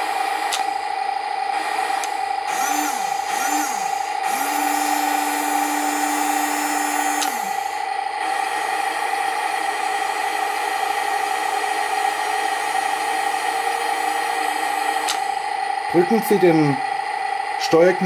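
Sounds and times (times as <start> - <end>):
small electric motor whirring: 0.0 - 17.0
simulated engine idle: 0.0 - 18.0.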